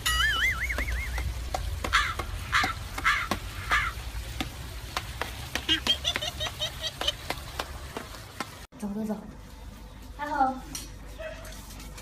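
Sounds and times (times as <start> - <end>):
higher bird chirps: 0.1 - 1.4
bird harsh calls: 1.9 - 4.0.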